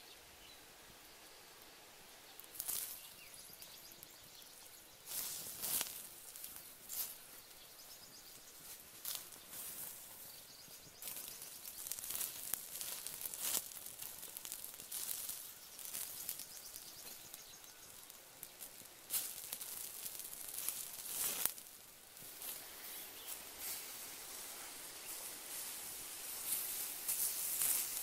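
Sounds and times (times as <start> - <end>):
wood fire crackling and hissing: 0.0 - 28.0
sharp snaps and pops: 2.4 - 4.4, 5.0 - 7.2, 11.0 - 22.6.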